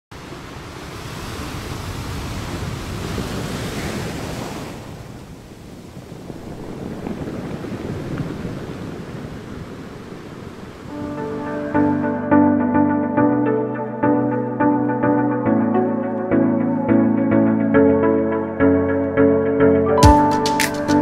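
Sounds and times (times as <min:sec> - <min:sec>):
wind: 0:00.1 - 0:11.9
surf rushing: 0:00.2 - 0:12.0.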